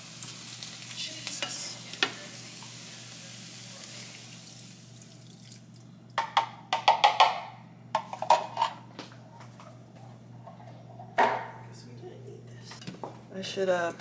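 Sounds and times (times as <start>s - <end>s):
meat sizzling in a saucepan: 0.0s - 5.6s.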